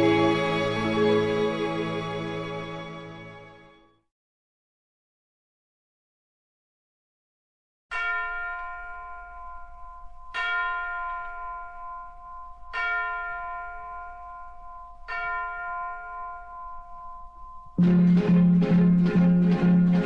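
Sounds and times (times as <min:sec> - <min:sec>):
bell ringing: 0:07.9 - 0:20.0.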